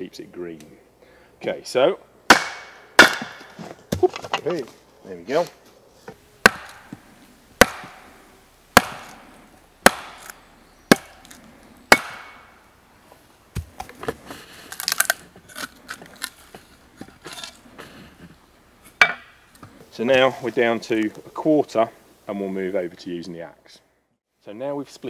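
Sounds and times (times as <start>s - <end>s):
wooden mallet striking steel: 2.3s - 3.6s, 6.4s - 7.0s, 7.6s - 8.1s, 8.8s - 9.2s, 9.8s - 11.2s, 11.9s - 12.5s, 19.0s - 19.4s
wood cracking and creaking: 13.6s - 18.4s.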